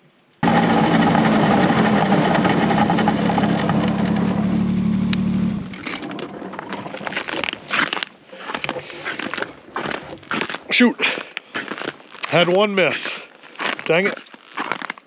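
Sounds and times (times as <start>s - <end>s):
vehicle engine running: 0.4s - 6.8s.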